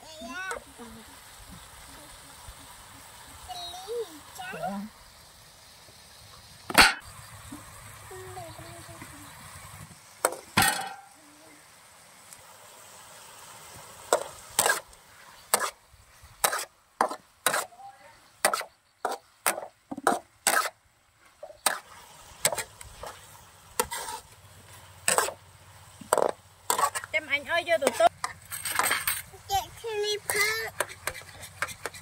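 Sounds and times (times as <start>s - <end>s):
metal spatula scraping a wok: 16.4s - 17.7s, 18.4s - 20.8s, 21.4s - 25.4s, 26.1s - 27.1s.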